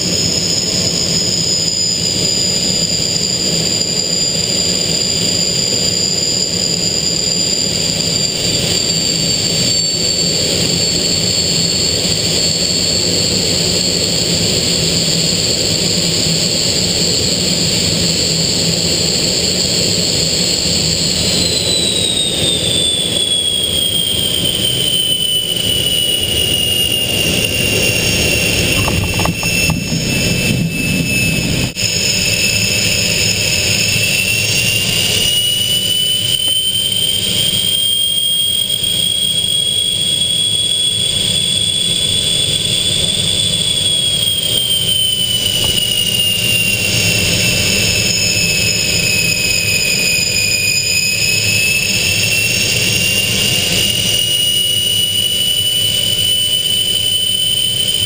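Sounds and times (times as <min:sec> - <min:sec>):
constant rush: 0:00.0 - 0:37.9
jet engine whine: 0:00.0 - 0:58.0.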